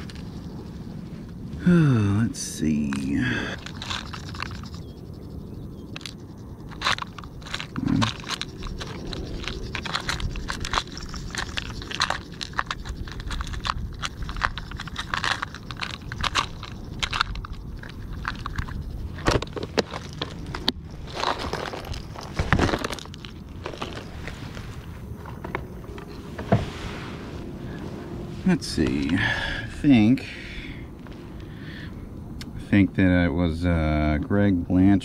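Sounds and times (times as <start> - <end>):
metal tackle rattling in plastic box: 2.7 - 5.0, 5.9 - 24.1
tackle box clatter: 3.6 - 4.8, 6.0 - 24.2.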